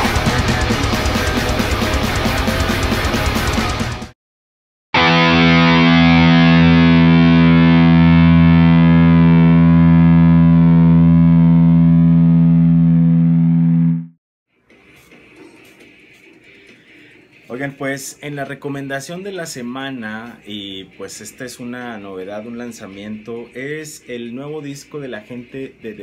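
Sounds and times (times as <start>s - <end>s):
distorted electric guitar chord: 0.0s - 4.1s, 5.0s - 14.1s.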